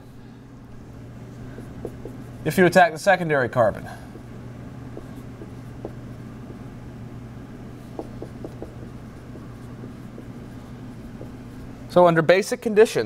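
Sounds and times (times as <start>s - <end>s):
marker squeaking on whiteboard: 1.6s - 2.4s, 7.9s - 11.8s.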